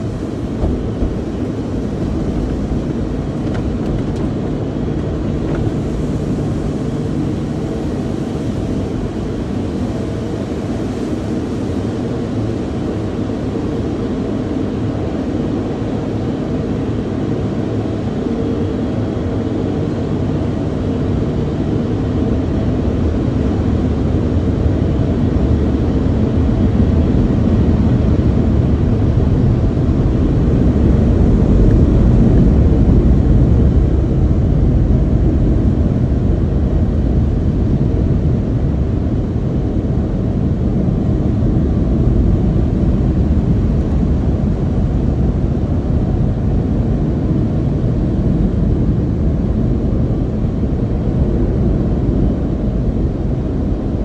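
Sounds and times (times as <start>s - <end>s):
air dryer blowers: 0.0s - 12.8s
car wash water sprays and machinery: 0.0s - 54.0s.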